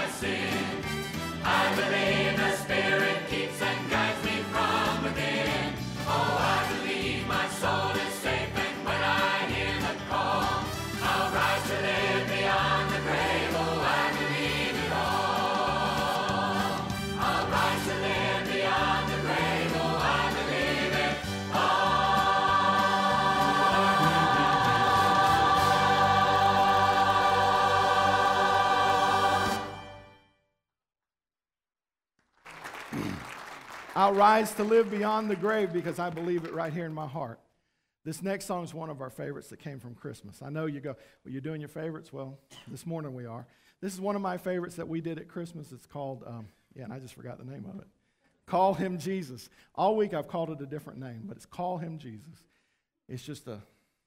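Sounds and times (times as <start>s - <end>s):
choir singing gospel song: 0.0s - 30.1s.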